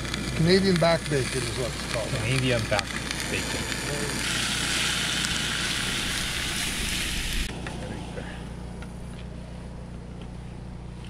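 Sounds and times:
bacon sizzling in a skillet: 0.0 - 7.5
steady low hum: 0.0 - 11.0.

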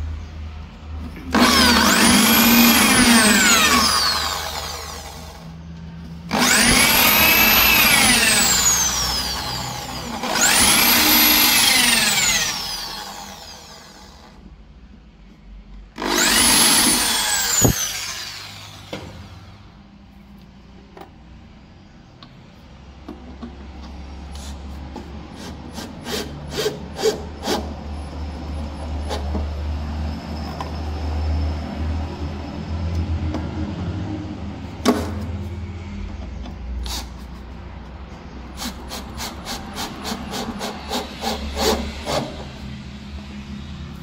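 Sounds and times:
cordless drill driving screws: 1.3 - 5.4, 6.3 - 14.3, 16.0 - 19.3
drill clutch clicking: 1.3 - 5.4, 6.3 - 14.2, 16.0 - 18.9
electric drill boring into wood: 1.3 - 5.5, 6.3 - 14.4, 16.0 - 19.4.

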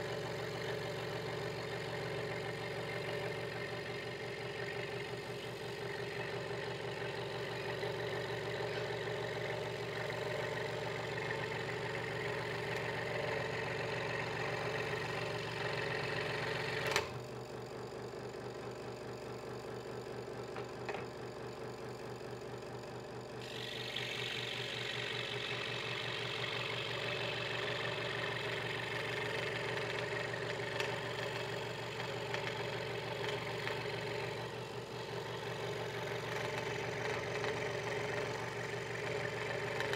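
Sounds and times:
scroll saw cutting wood: 23.4 - 28.4
scroll saw motor running: 23.4 - 39.9.

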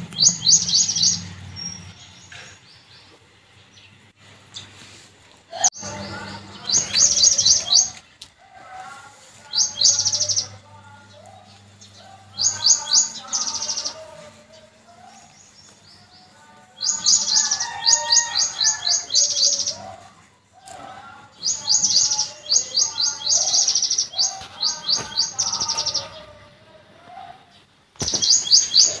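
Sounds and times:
lower wavering bird calls: 0.0 - 2.5, 11.2 - 14.1
birds chirping high notes: 0.0 - 3.1, 5.6 - 8.1, 9.5 - 19.8, 21.3 - 26.4, 28.0 - 29.0.

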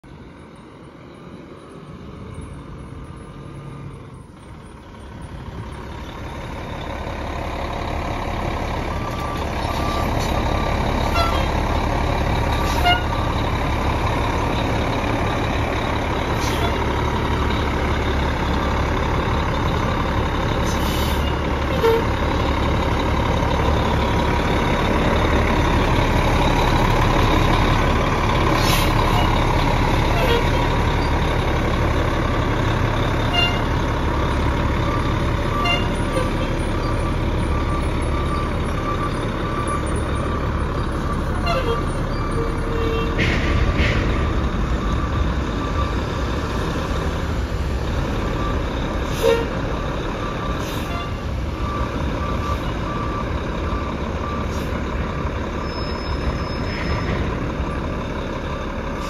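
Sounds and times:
diesel engine idling: 0.1 - 59.0.

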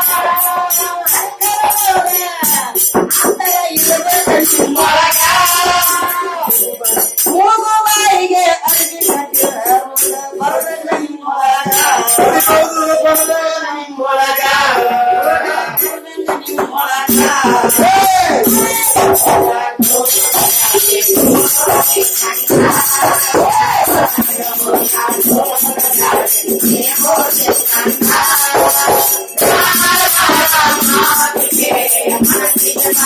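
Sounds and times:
group singing folk song: 0.0 - 7.0, 8.4 - 33.0
hand-beaten frame drum: 0.0 - 13.4, 14.2 - 33.0
small hand cymbals clashing: 18.4 - 33.0.

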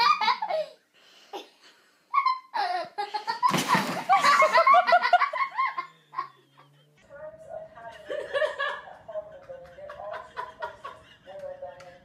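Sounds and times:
people laughing and giggling: 2.2 - 6.8, 7.8 - 12.0.

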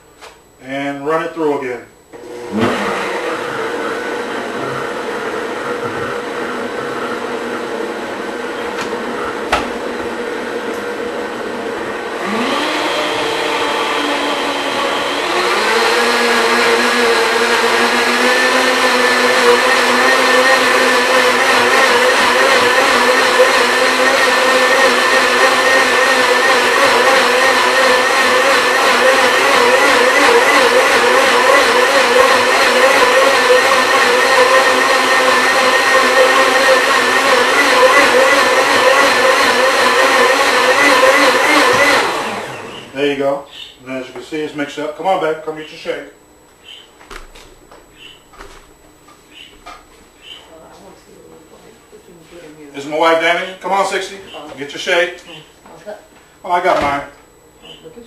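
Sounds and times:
blender motor running: 2.2 - 43.1.

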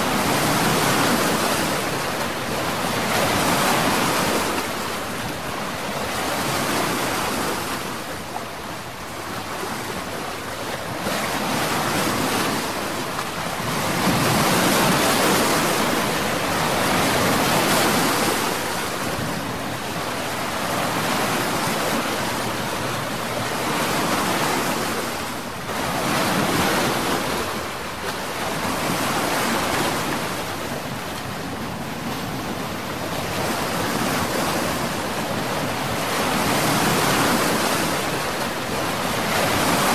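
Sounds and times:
sea waves washing: 0.0 - 39.9.

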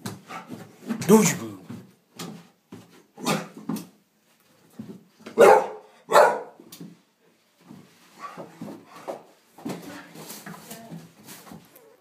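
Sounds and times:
dog barking: 5.3 - 6.6.

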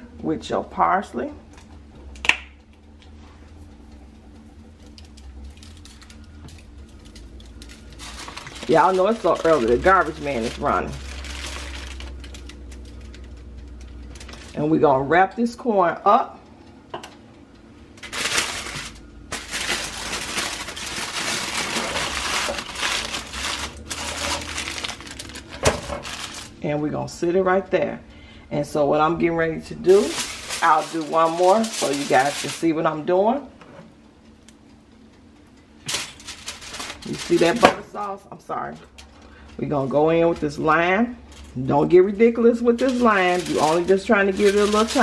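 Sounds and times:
garbage truck engine hum: 0.0 - 15.7, 16.4 - 33.6, 35.5 - 45.0
dried herbs shaken onto foil: 7.6 - 12.1, 18.0 - 26.6, 29.8 - 32.8, 42.7 - 45.0.

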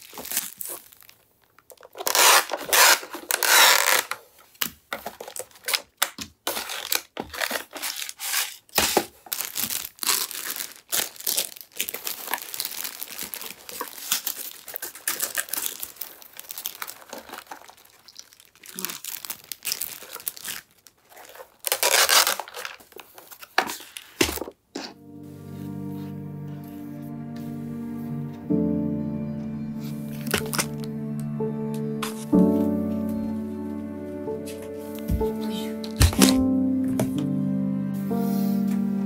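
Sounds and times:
packaging tearing: 0.0 - 24.5, 30.1 - 31.0
plastic crinkling: 0.0 - 24.6, 30.1 - 31.0.

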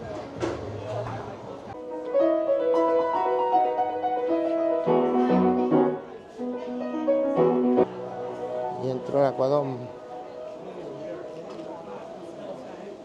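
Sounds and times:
upright piano melody over chords: 1.8 - 11.3.

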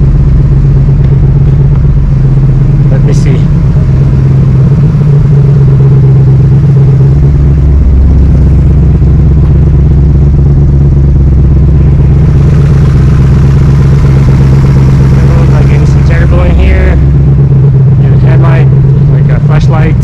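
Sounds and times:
car engine idling: 0.0 - 20.0
deep low rumble: 0.0 - 20.0.

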